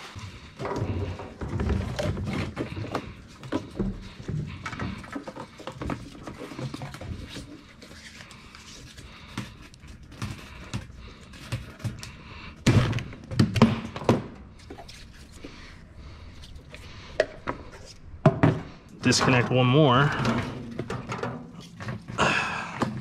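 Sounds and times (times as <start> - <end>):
knocks and scrapes: 0.0 - 22.2.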